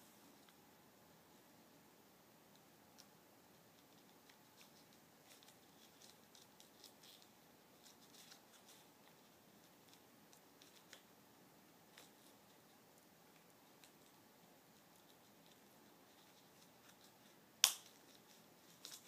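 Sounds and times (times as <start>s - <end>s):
gloved hands rustling dressing: 11.8s - 19.0s.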